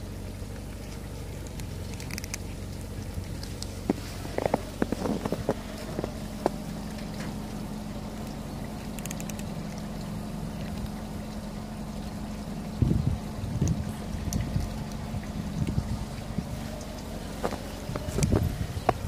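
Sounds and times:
low rumbling: 0.0 - 19.0
steady low hum: 0.0 - 19.0
sharp clicks: 1.4 - 2.5, 8.9 - 9.9.

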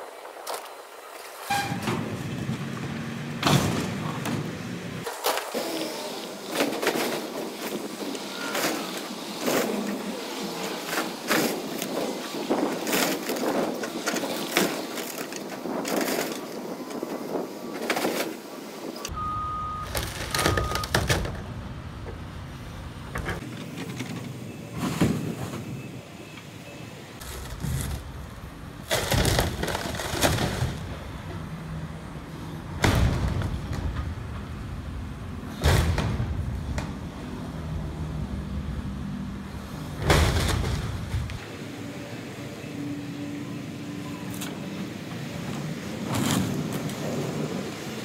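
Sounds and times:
excavator engine running: 19.1 - 24.7.

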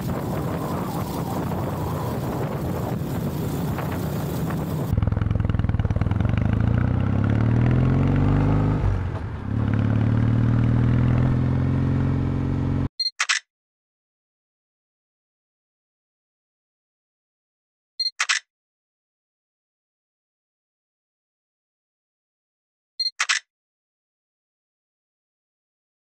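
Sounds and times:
wind noise: 0.0 - 6.6
motorcycle engine accelerating: 0.0 - 12.9.

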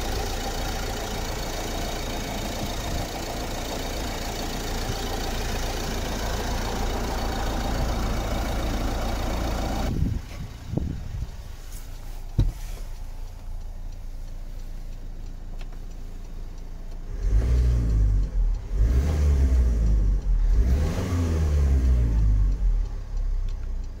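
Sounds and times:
diesel engine idling: 0.0 - 24.0
click: 11.3 - 17.1, 22.5 - 24.0
engine revving: 16.9 - 23.9.

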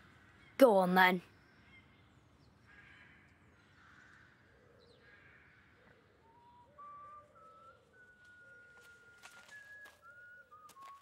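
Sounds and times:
whistled notes: 6.4 - 11.0.

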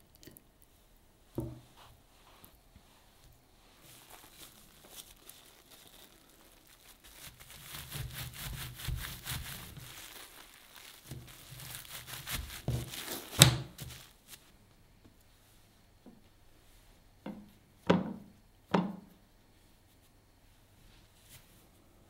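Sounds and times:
plastic wrap crinkling and rubbing: 1.6 - 14.6
knock on wood: 17.3 - 19.0.

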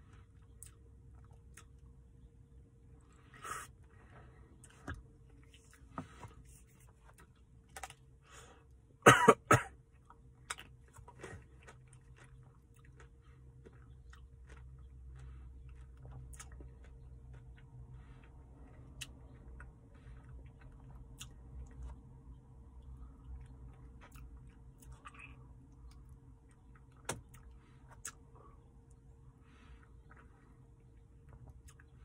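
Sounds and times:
faint steady hum: 0.0 - 32.0
person coughing: 9.0 - 9.8.

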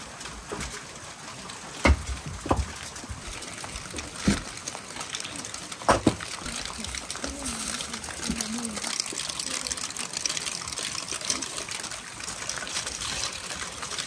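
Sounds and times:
rain hissing: 0.0 - 14.0
bricks knocking dully: 1.8 - 4.9, 5.8 - 8.5.

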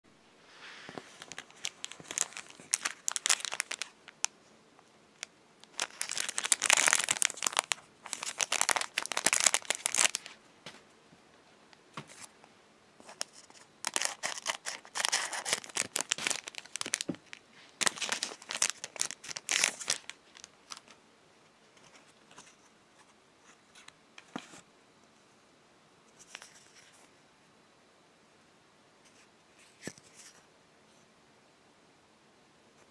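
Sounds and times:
cellophane crinkling and tearing: 1.0 - 4.3, 5.2 - 10.4, 13.0 - 20.9.

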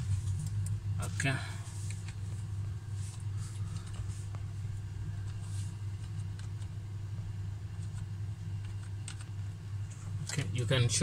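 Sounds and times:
steady low hum: 0.0 - 11.0
computer keyboard keystrokes: 8.6 - 9.3.

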